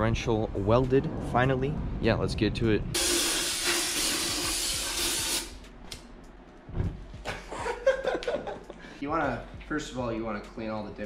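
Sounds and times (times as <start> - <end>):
aerosol spray hissing: 3.0 - 5.6.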